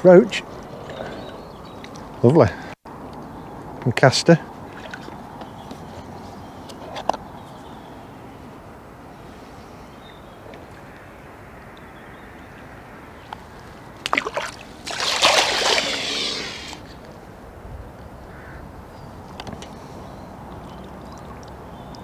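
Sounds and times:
water splashing and sloshing: 4.5s - 7.1s, 13.0s - 16.9s, 20.4s - 22.0s.

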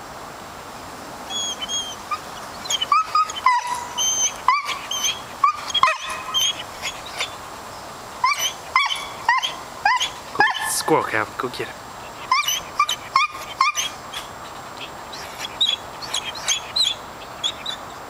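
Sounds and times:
dog whining: 1.3s - 7.4s, 8.2s - 10.9s, 12.1s - 14.3s, 15.1s - 17.8s.

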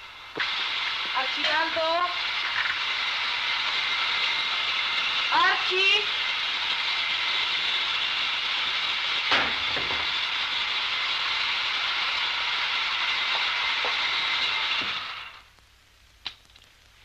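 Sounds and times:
old film soundtrack hiss: 0.0s - 17.0s.

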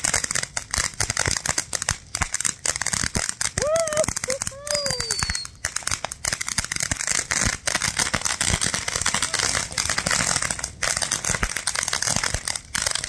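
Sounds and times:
fireworks crackling: 0.0s - 13.0s.

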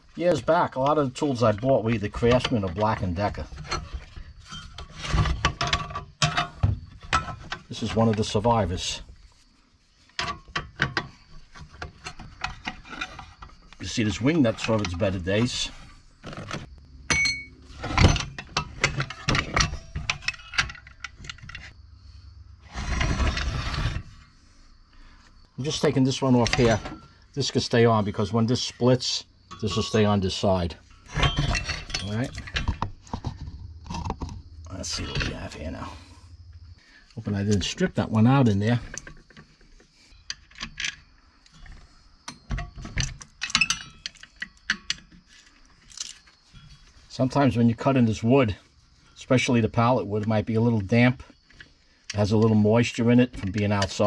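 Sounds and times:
metal clicks and rattles: 16.3s - 21.8s, 38.4s - 46.8s
metal scraping: 22.6s - 36.3s.

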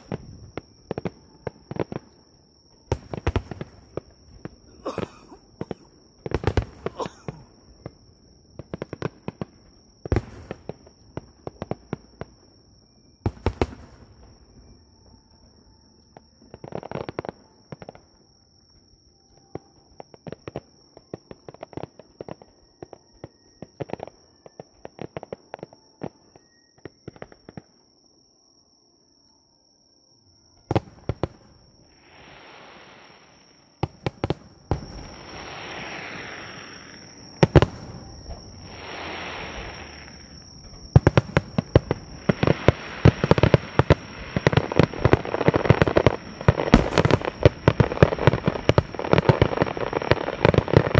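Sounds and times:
fireworks bangs: 0.0s - 12.5s, 13.2s - 14.8s, 30.6s - 50.9s
hissing crackle: 31.1s - 50.9s.

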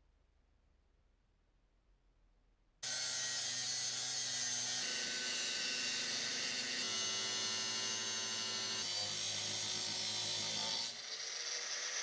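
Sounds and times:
angle grinder cutting steel: 2.8s - 12.0s.

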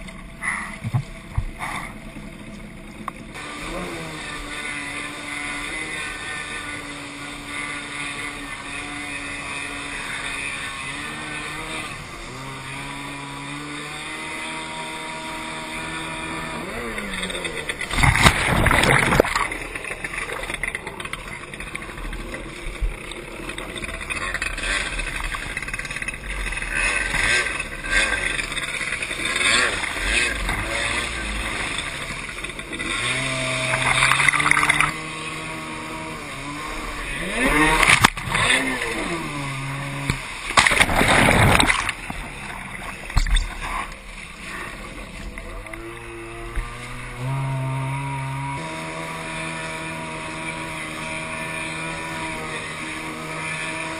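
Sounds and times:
jet ski engine revving: 0.0s - 53.9s
water rushing: 0.0s - 53.9s
loud splashes: 17.7s - 20.6s, 33.1s - 35.4s, 37.0s - 44.5s.

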